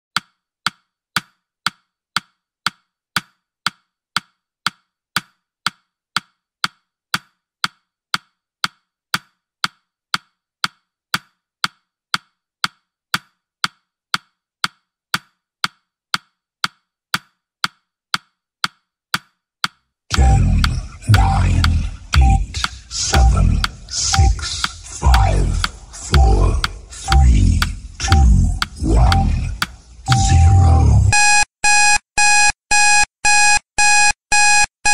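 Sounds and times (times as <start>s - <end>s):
timer ticking: 19.6s - 34.9s.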